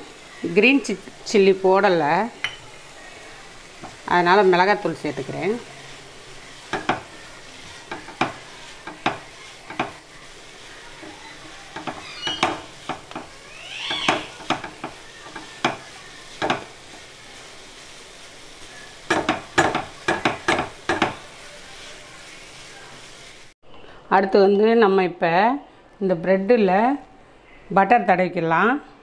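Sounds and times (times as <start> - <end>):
faint sizzle: 0.0 - 29.0
spatula scraping frying pan: 5.0 - 17.3
rising high squeal: 13.4 - 14.3.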